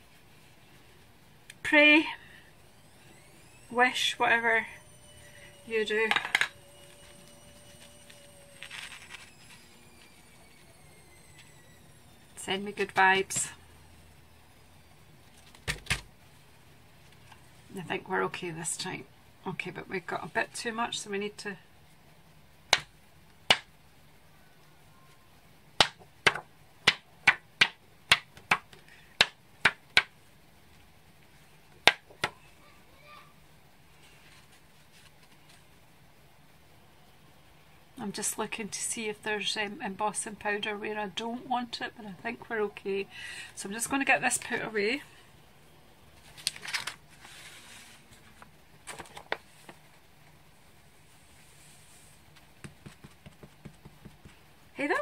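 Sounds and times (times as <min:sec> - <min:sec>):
paper rustling: 0:06.8 - 0:10.2, 0:34.0 - 0:35.8, 0:46.2 - 0:50.4.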